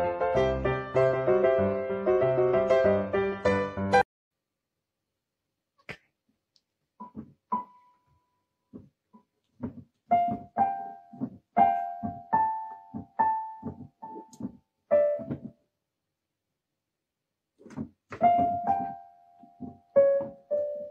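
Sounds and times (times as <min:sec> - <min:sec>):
keyboard piano notes: 0:00.0 - 0:04.0, 0:10.1 - 0:15.5, 0:18.1 - 0:20.9.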